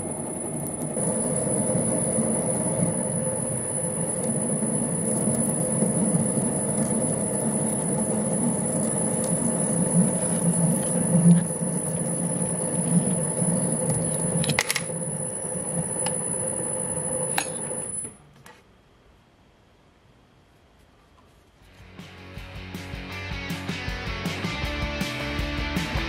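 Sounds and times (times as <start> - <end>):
metal lathe whining: 0.0 - 18.1.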